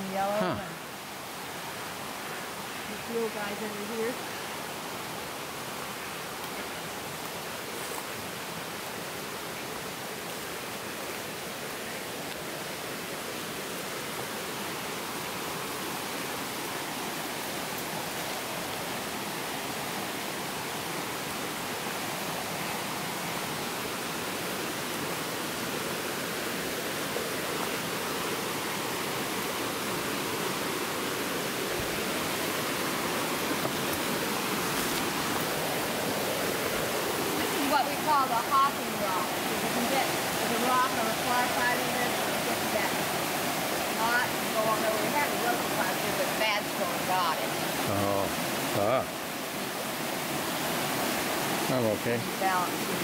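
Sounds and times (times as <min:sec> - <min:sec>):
creek water rushing over rocks: 0:00.0 - 0:53.0.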